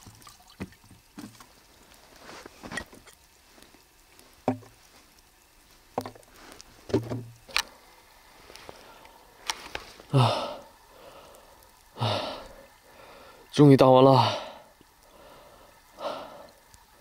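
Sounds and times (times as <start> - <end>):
breathy sighs: 10.1 - 13.5, 14.2 - 16.6.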